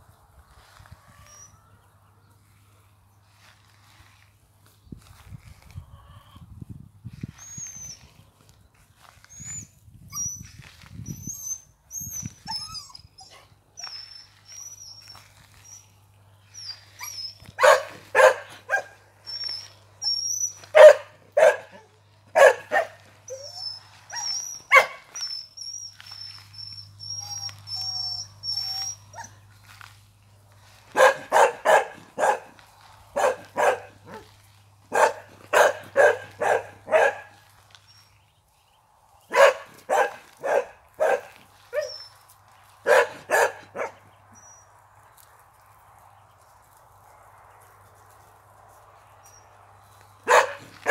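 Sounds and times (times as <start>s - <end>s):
dog barking: 17.6s - 19.0s, 20.7s - 23.0s, 24.2s - 25.1s, 30.9s - 34.3s, 34.9s - 37.4s, 39.3s - 42.0s, 42.8s - 44.0s, 50.2s - 50.9s.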